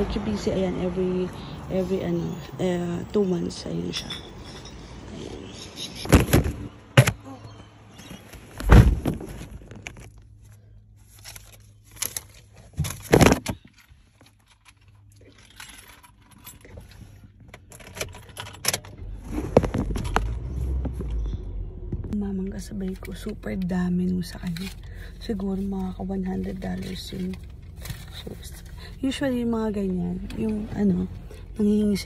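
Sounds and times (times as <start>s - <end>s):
low rumble: 19.0s - 32.0s.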